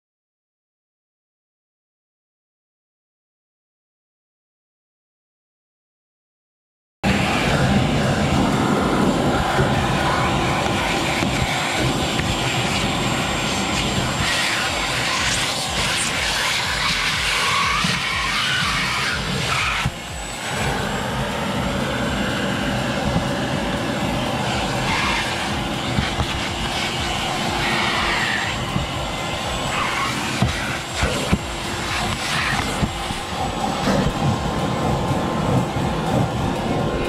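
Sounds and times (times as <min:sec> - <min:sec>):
vacuum cleaner running: 0:07.0 - 0:37.0.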